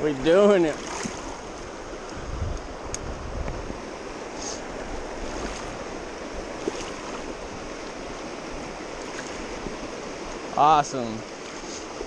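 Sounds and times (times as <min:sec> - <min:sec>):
river running over rocks: 0:00.0 - 0:12.0
faint sharp tick: 0:02.0 - 0:03.6.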